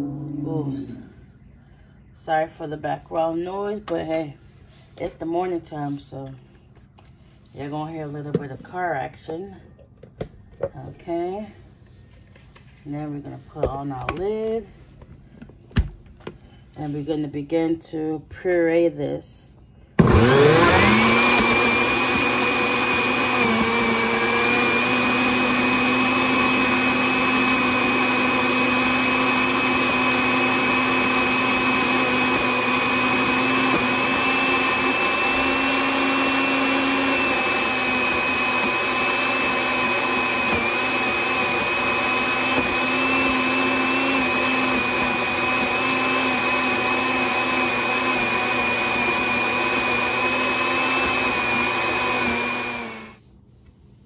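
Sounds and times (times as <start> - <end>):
blender motor whining: 20.0 - 53.2.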